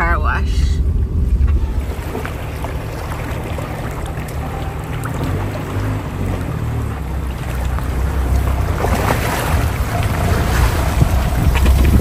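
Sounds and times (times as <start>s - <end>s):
wind rumbling on microphone: 0.0s - 12.0s
rushing river water: 1.2s - 12.0s
splashy crackle: 1.5s - 12.0s.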